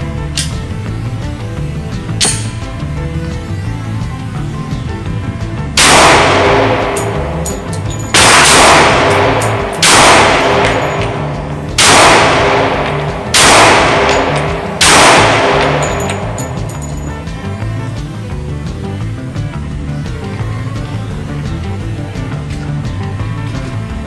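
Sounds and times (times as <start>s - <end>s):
background music: 0.0s - 24.0s
pistol shots echoing indoors: 5.8s - 16.8s.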